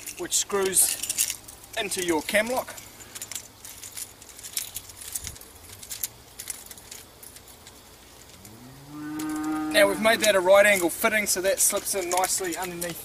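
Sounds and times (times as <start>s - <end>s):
metal pin and ring jingling: 0.0s - 8.4s.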